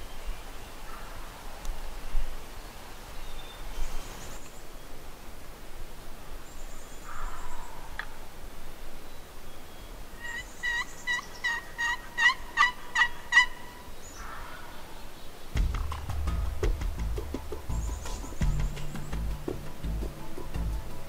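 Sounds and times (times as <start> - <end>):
turkey yelping: 10.2 - 14.4.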